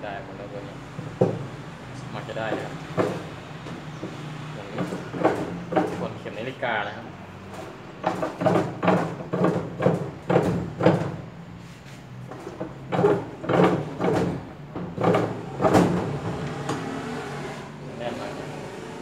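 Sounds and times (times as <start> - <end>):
wrench knocking and scraping metal: 2.4 - 6.2, 7.5 - 11.2, 12.3 - 16.7.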